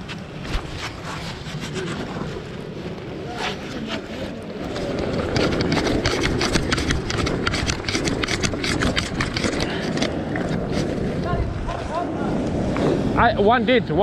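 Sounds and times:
wind rumbling on microphone: 0.0s - 14.0s.

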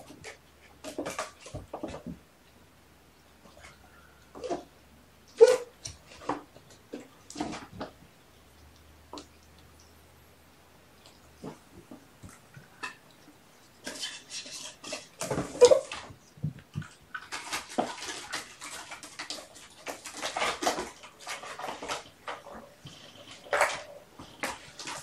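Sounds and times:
kittens scratching and rustling: 5.3s - 10.0s, 11.0s - 25.0s.

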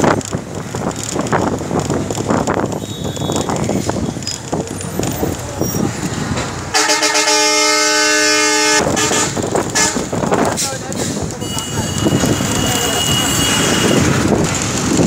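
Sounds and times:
busy street traffic: 0.0s - 15.0s
vehicle horn long blast: 6.7s - 10.1s, 11.4s - 14.1s.

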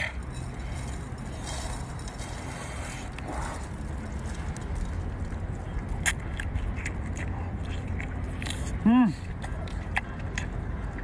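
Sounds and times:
low background rumble: 0.0s - 11.0s
wet biting clicks: 5.8s - 11.0s.

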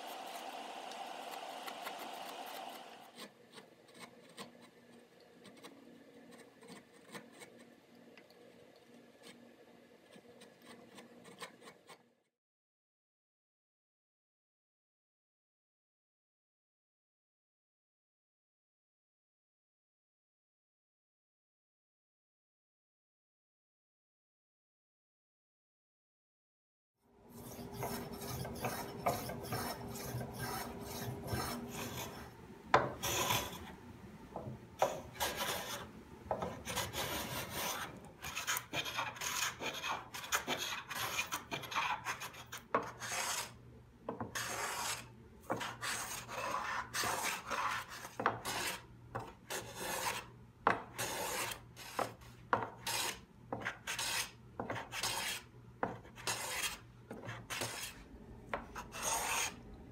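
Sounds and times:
hand plane rasping on wood: 27.4s - 32.3s, 44.4s - 45.0s, 51.0s - 51.6s, 52.9s - 53.2s, 53.9s - 55.4s, 56.2s - 56.8s, 58.9s - 59.6s.

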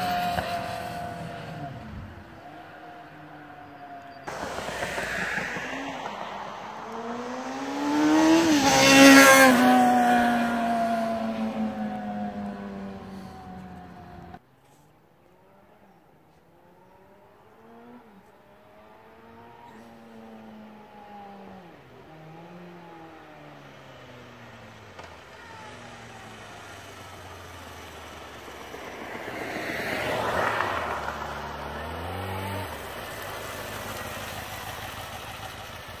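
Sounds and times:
motorcycle engine accelerating: 4.3s - 14.4s
motorcycle engine idling: 32.8s - 36.0s.

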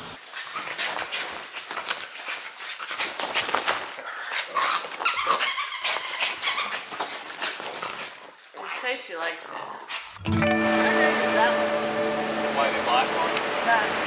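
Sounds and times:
dog noises: 0.4s - 8.8s.

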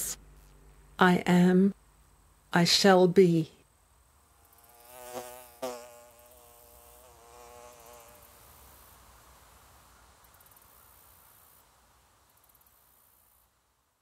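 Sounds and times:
bee buzzing in flight: 4.3s - 9.1s.

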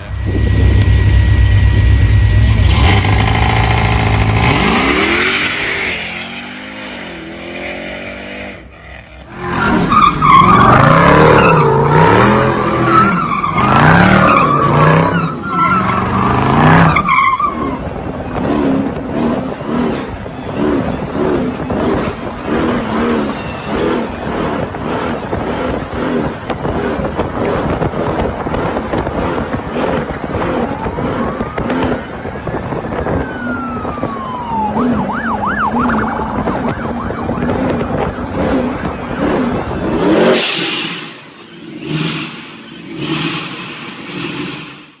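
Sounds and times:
car engine revving hard: 2.4s - 8.6s, 37.5s - 45.0s.

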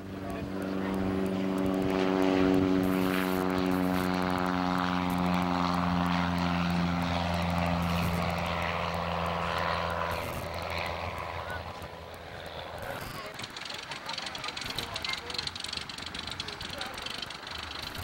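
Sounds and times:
propeller airplane engine drone: 0.0s - 18.0s.

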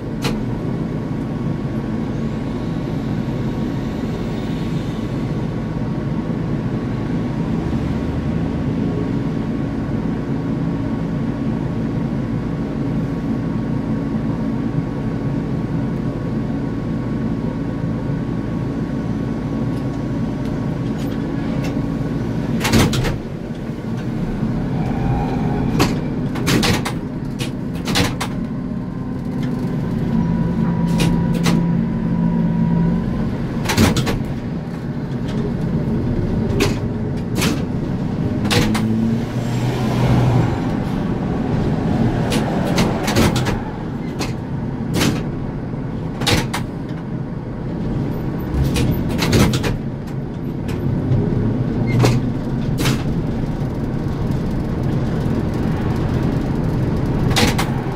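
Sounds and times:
bus body clunks and rattles: 0.0s - 2.5s, 8.7s - 57.9s.

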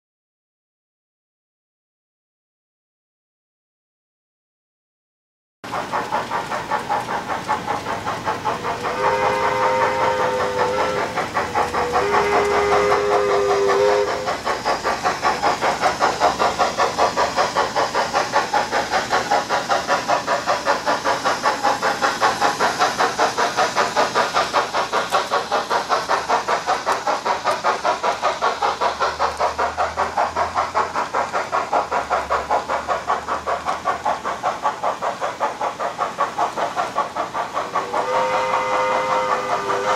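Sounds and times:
steam locomotive chuffing: 5.6s - 39.9s
steam whistle blowing: 8.6s - 15.0s, 37.7s - 39.9s.

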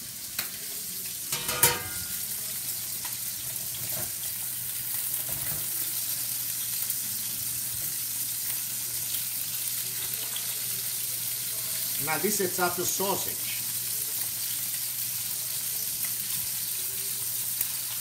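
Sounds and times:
meat sizzling in oil: 0.0s - 18.0s
metal pan clank: 1.3s - 2.3s.

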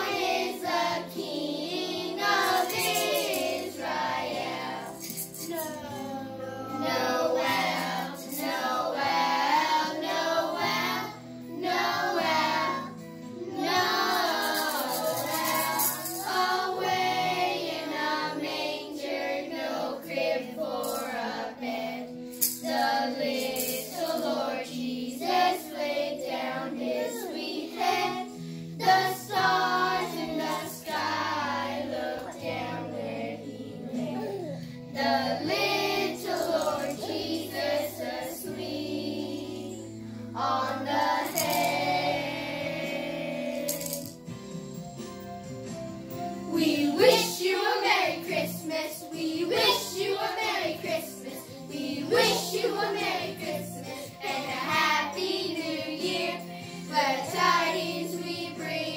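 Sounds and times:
instrumental accompaniment: 0.0s - 19.3s
children singing a carol: 0.0s - 43.8s, 46.5s - 58.9s.

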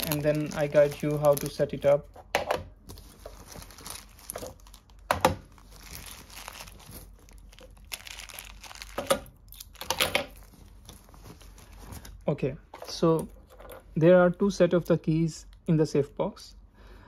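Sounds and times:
fabric pouch rustling: 0.0s - 1.6s, 2.8s - 9.0s, 10.3s - 12.2s
plastic bag crackling: 0.0s - 2.0s, 2.8s - 12.2s.

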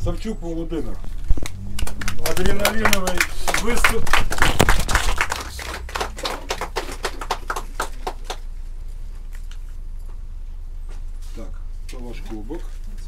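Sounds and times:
small group clapping: 1.4s - 8.6s.

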